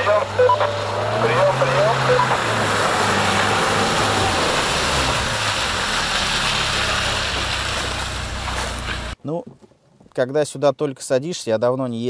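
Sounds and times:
car engine running off-road: 0.0 - 9.2.

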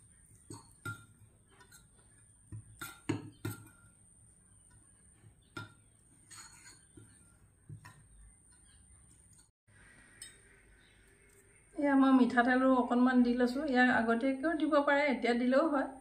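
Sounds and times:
soft scrape: 6.2 - 7.2.

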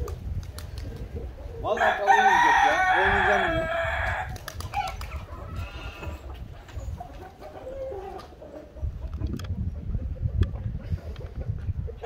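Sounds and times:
rooster crowing: 1.8 - 4.3
clucking calls: 4.6 - 12.0.

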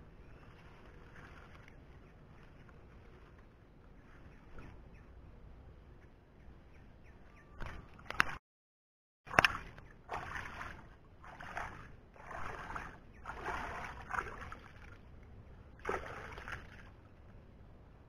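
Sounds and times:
hands splashing in muddy water: 9.3 - 15.0, 15.8 - 17.0.

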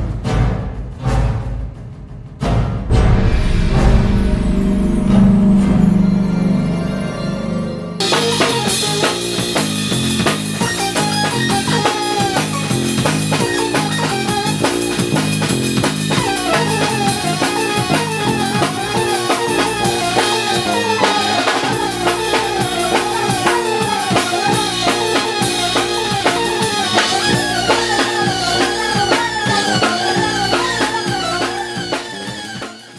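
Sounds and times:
instrumental band music: 0.0 - 32.9
drum kit playing busy beat: 8.0 - 32.9.

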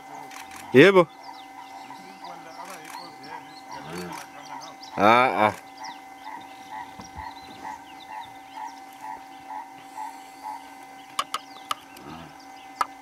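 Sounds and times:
small animal calling: 0.0 - 12.9.

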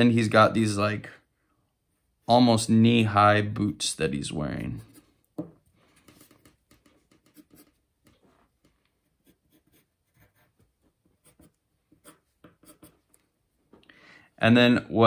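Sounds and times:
pencil scratching on paper: 5.9 - 13.1.

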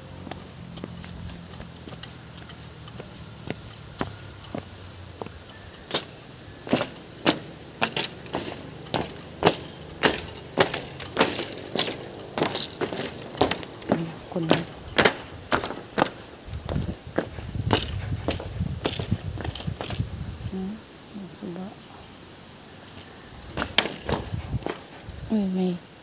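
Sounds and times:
footsteps on dirt path: 0.0 - 20.4, 23.0 - 25.8
footsteps on bamboo footbridge: 0.0 - 20.5, 22.8 - 26.0.

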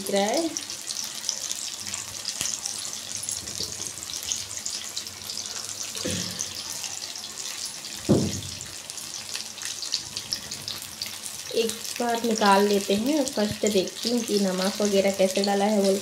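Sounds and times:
deep-frying sizzle: 0.0 - 16.0
dull thumps: 8.1 - 8.6.

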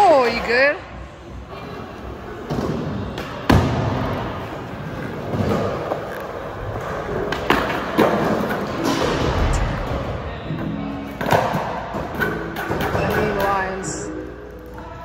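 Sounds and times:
skateboard wheels rolling: 1.5 - 13.4.

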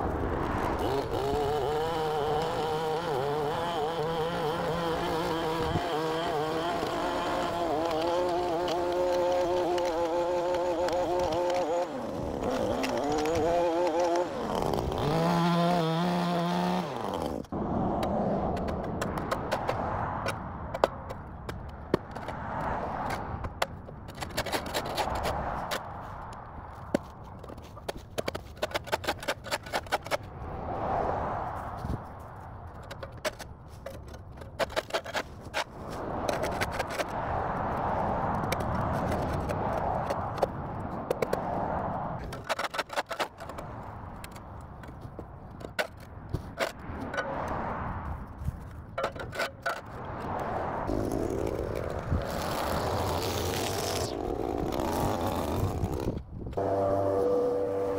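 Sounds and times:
traffic passing: 0.0 - 57.9
shovel scraping on concrete: 27.6 - 30.2.

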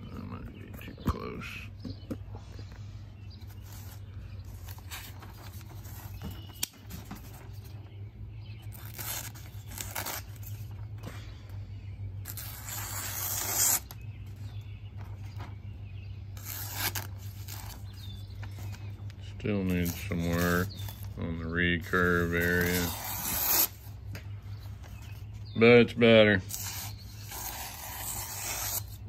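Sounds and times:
knife slicing newspaper: 8.6 - 10.7, 12.2 - 14.0, 16.3 - 18.8, 19.5 - 21.2, 21.8 - 23.9, 26.4 - 29.0.

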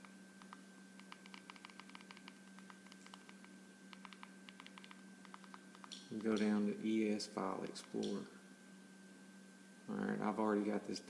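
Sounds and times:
remote buttons clicking: 0.0 - 6.5
low steady hum: 0.0 - 11.0.

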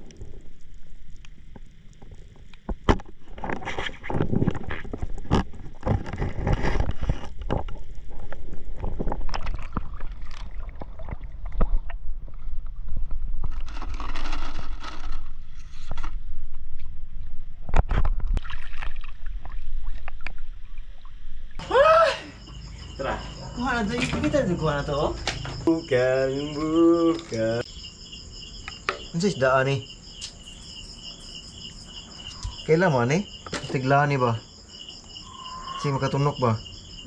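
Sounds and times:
splashing and bubbling: 0.0 - 13.7, 17.9 - 21.7.

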